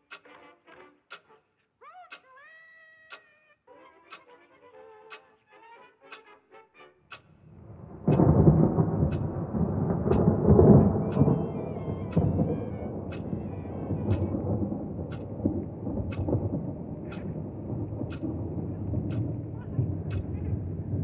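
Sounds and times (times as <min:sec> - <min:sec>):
clock ticking: 0:00.0 - 0:00.2, 0:07.1 - 0:21.0
deep rumble: 0:07.6 - 0:21.0.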